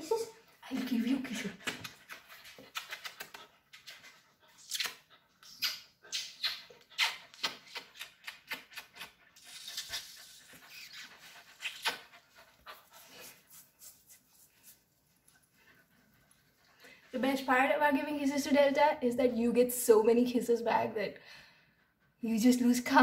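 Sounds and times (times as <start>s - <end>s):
dog licking and kissing smacks: 1.6s - 12.1s.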